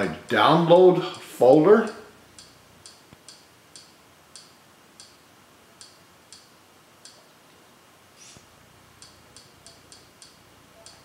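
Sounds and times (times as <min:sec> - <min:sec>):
faint high-pitched menu ticks: 0:01.1 - 0:05.2, 0:05.8 - 0:07.3, 0:09.0 - 0:11.0.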